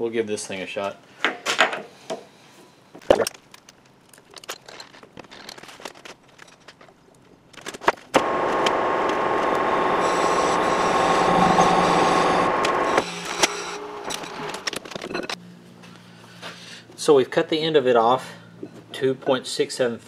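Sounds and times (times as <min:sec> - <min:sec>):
metal lathe humming: 0:08.2 - 0:14.7.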